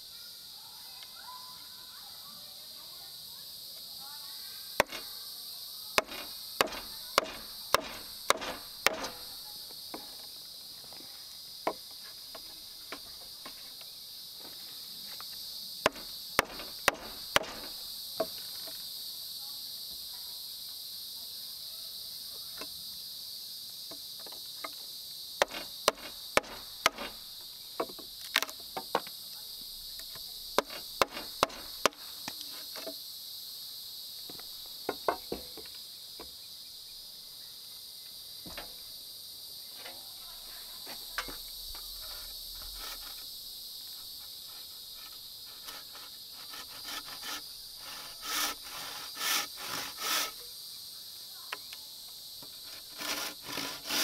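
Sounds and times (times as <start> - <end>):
insects droning: 0.0 - 54.0
hand tool knocking on wood: 6.0 - 9.2, 15.9 - 18.4
scraping on wood: 6.0 - 9.4, 15.9 - 18.7, 25.4 - 27.2, 42.0 - 43.3, 43.9 - 50.4, 52.4 - 54.0.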